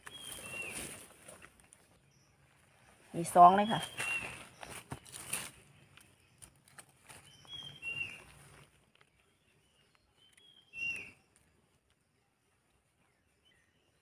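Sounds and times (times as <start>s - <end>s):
bird calling: 0.0s - 1.0s, 3.5s - 5.2s, 7.2s - 8.6s, 9.4s - 11.3s
rustling of dry leaves: 0.0s - 13.7s.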